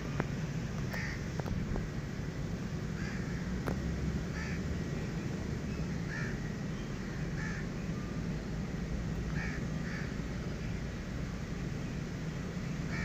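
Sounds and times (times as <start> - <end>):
crows cawing: 0.9 - 1.2, 3.0 - 3.4, 4.4 - 4.6, 6.1 - 6.3, 7.4 - 7.6, 9.4 - 10.1.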